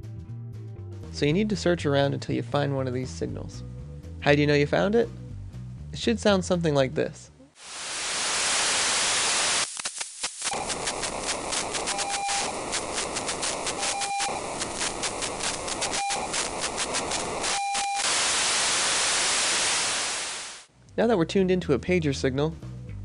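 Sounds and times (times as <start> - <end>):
radio static hiss: 7.6 - 20.7
rasping pager data burst: 8.5 - 20.6
short beeps: 17.5 - 18.1.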